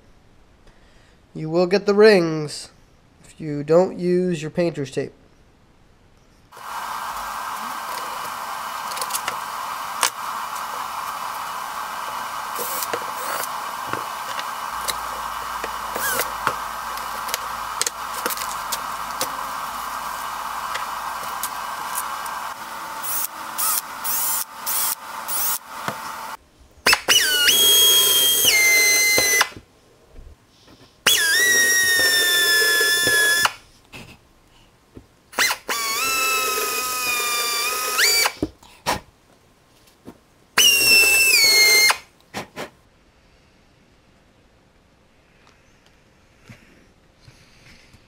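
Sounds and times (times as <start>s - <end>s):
air drill high whine: 6.6s - 29.6s, 31.0s - 33.6s, 35.4s - 38.4s, 40.6s - 42.1s.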